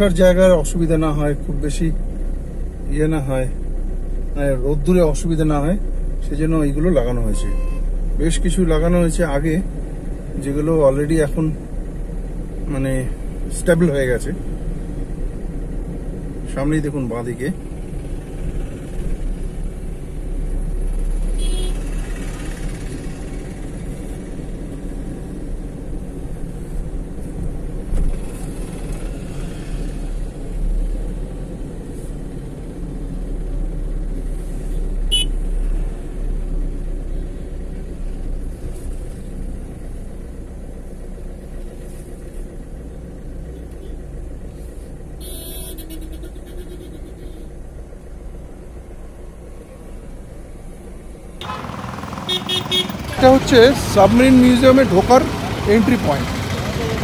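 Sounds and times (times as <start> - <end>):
traffic road and engine rumble: 0.0 - 57.0
vehicle horns beeping: 7.2 - 8.0, 21.4 - 21.9, 35.1 - 35.5, 45.2 - 47.5, 51.4 - 54.2.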